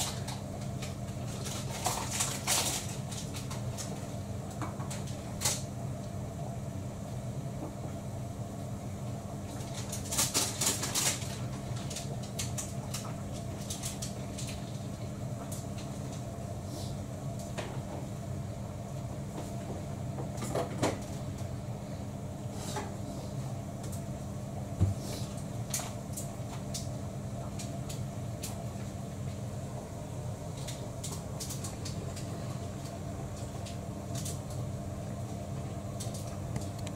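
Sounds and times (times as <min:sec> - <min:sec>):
cats crunching food: 0:00.0 - 0:04.2, 0:09.5 - 0:16.2, 0:30.5 - 0:34.6
steady low hum: 0:00.0 - 0:36.9.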